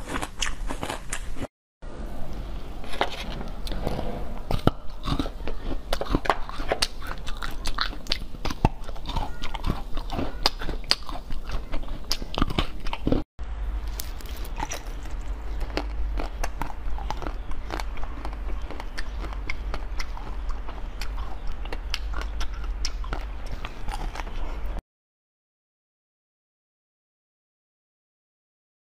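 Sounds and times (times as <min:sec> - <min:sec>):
biting and chewing fruit: 0:00.0 - 0:01.5, 0:02.8 - 0:24.8
crunching ice sticks: 0:00.0 - 0:01.5, 0:02.8 - 0:13.2, 0:13.8 - 0:24.8
low steady hum: 0:01.2 - 0:24.8.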